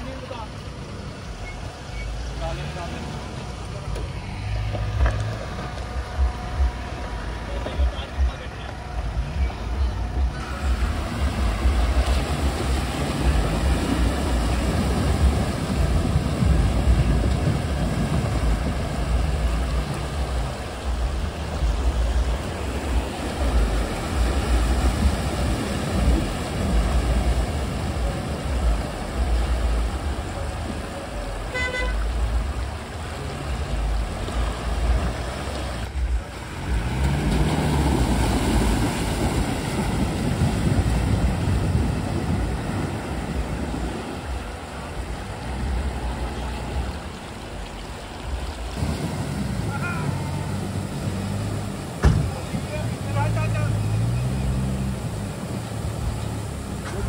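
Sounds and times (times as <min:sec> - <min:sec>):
rushing splashing water: 0:00.0 - 0:57.0
suv engines revving: 0:00.0 - 0:57.0
car horn toot: 0:31.5 - 0:32.2.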